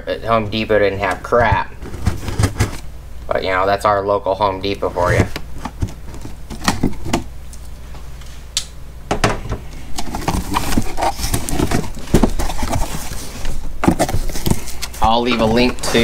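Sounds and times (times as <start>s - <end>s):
cardboard rustling: 0.3s - 2.9s, 4.6s - 7.3s, 9.8s - 16.0s
cardboard knocks and scrapes: 1.2s - 2.8s, 10.0s - 14.7s
cardboard box being opened: 10.0s - 16.0s.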